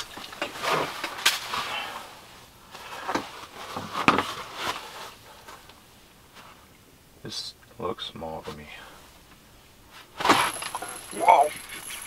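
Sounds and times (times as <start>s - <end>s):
fishing reel handling rustles: 10.4s - 12.0s.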